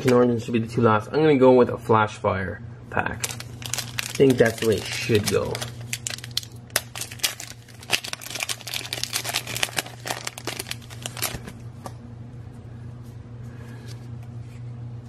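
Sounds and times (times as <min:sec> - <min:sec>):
foil wrapper crinkling and tearing: 0:03.2 - 0:11.6.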